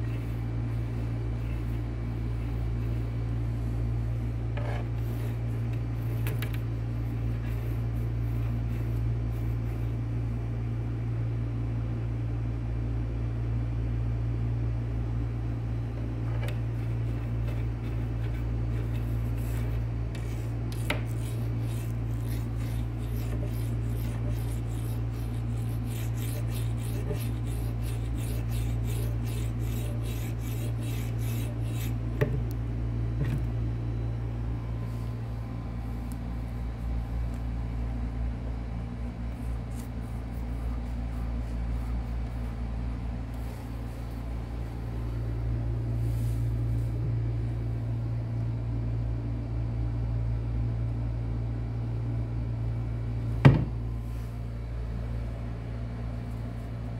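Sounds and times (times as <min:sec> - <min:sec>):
steady low hum: 0:00.0 - 0:56.9
rubbing and scraping: 0:16.8 - 0:32.4.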